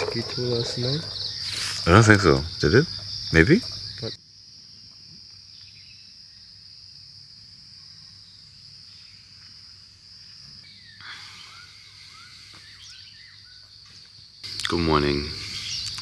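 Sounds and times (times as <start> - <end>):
insects trilling: 0.0 - 16.0
short chirping calls: 10.6 - 16.0.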